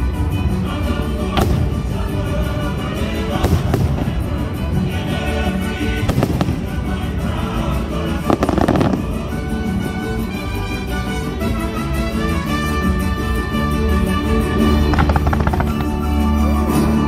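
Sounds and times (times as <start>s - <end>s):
music soundtrack: 0.0s - 17.0s
crackling fireworks stars: 0.2s - 12.4s, 13.0s - 16.7s
fireworks bangs: 14.6s - 16.0s.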